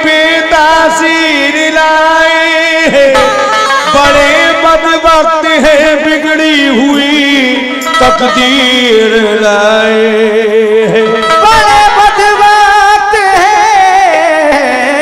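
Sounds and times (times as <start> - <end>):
harmonium accompaniment: 0.0 - 15.0
person singing long wavering notes: 0.0 - 15.0.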